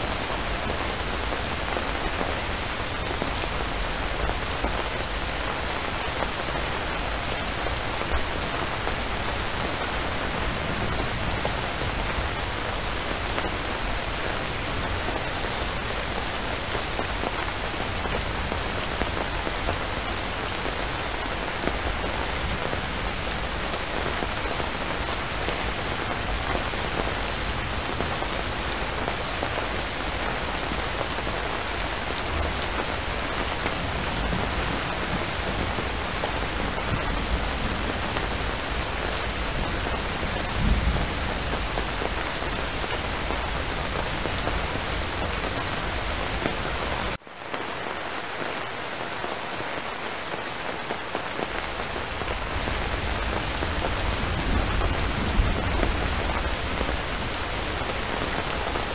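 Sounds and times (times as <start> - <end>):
heavy rain hissing: 0.0 - 58.9.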